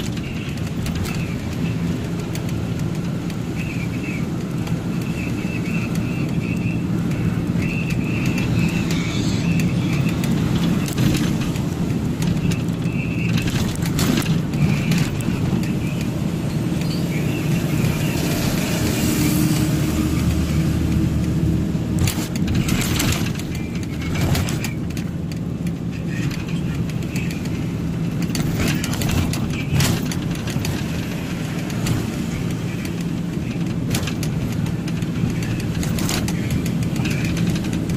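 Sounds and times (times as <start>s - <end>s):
road noise: 0.0s - 37.9s
truck engine drone: 0.0s - 37.9s
knocks and rattles: 9.6s - 16.0s, 21.9s - 37.9s.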